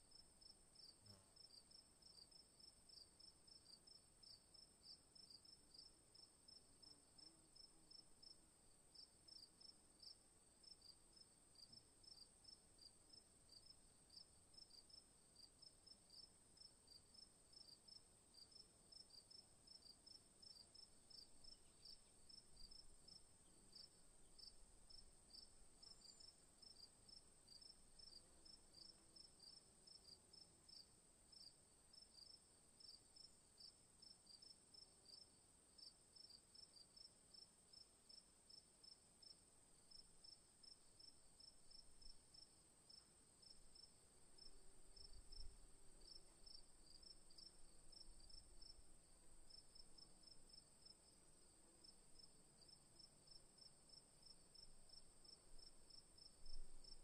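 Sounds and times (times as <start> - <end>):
crickets chirping: 9.0 - 57.0.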